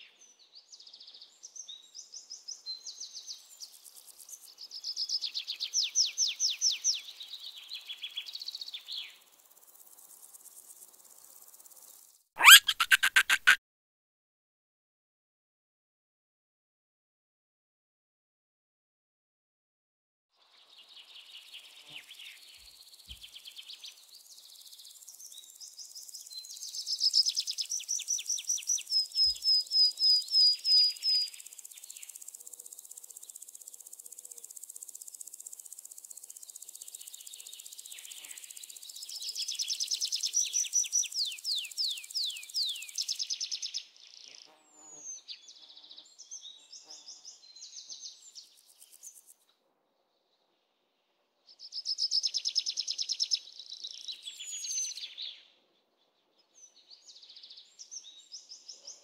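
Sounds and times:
high insect hiss: 2.9s - 12.3s, 21.2s - 44.7s, 46.7s - 49.4s
birds singing: 12.4s - 13.6s.

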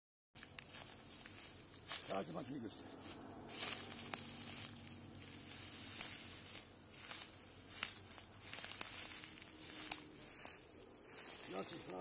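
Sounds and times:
footsteps through dry leaves: 0.4s - 12.0s
twig snaps: 5.9s - 10.1s.

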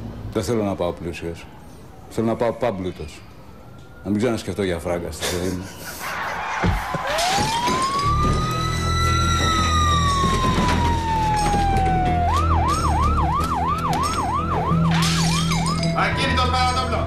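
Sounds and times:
police siren wailing and yelping: 3.2s - 5.0s, 5.6s - 17.0s.

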